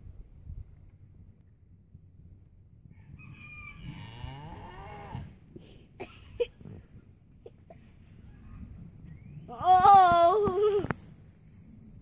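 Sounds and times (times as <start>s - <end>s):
cow mooing: 3.9s - 5.3s.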